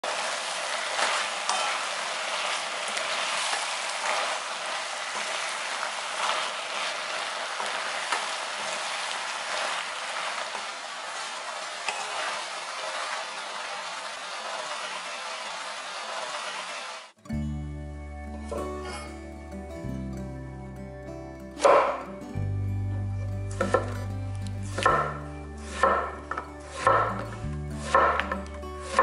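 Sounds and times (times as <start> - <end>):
vegetables sizzling in frying pan: 0.0 - 17.1, 23.6 - 29.0
spatula scraping and knocking pan: 1.5 - 2.0, 23.6 - 24.0, 24.8 - 27.2, 27.8 - 29.0.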